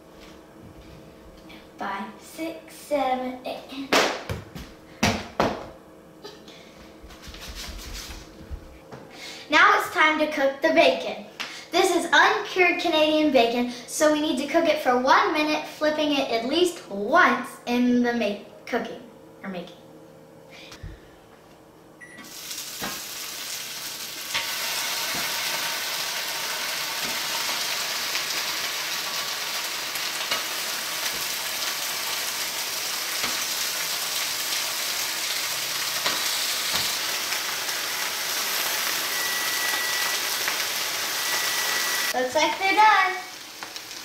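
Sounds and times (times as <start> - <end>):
bacon sizzling on a skillet: 22.2 - 44.0.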